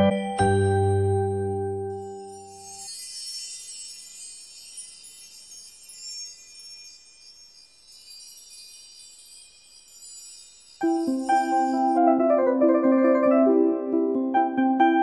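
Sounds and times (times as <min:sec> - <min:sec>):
chimes tinkling: 0:00.0 - 0:12.0.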